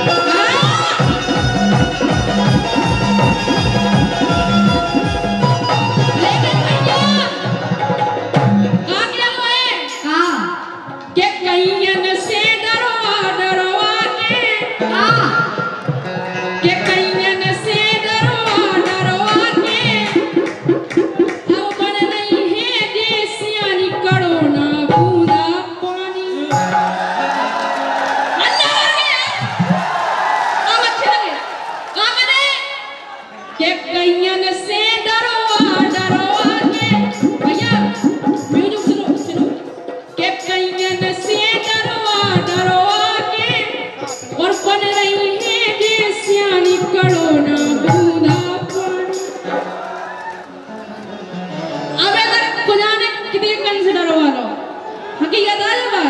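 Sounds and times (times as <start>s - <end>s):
quick drum beat: 0.0s - 8.8s, 16.8s - 25.6s, 35.5s - 39.6s
percussion beat: 0.0s - 31.6s, 34.6s - 50.5s.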